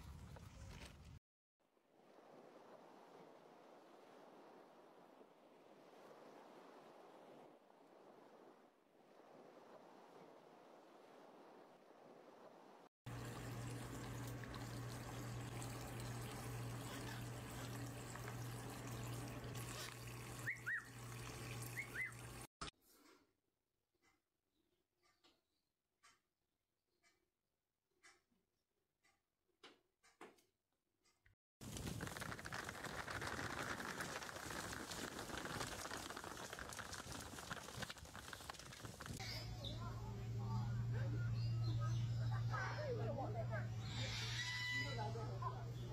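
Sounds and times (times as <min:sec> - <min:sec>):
water trickling: 0:13.1 - 0:22.5, 0:31.6 - 0:39.2
parrot chirping: 0:20.4 - 0:21.0, 0:21.7 - 0:22.2
hooves galloping on dusty road: 0:31.6 - 0:39.2.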